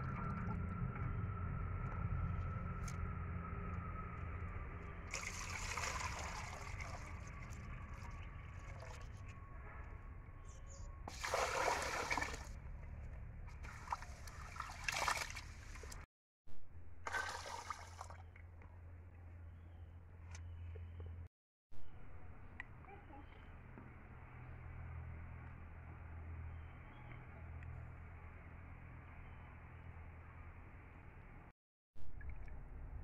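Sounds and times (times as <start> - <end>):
water pouring over rice: 5.1 - 7.6.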